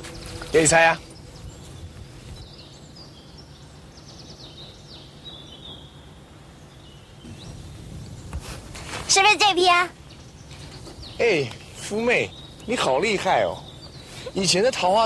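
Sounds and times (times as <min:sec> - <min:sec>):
birds chirping: 0:00.0 - 0:15.0
low outdoor rumble: 0:07.3 - 0:15.0.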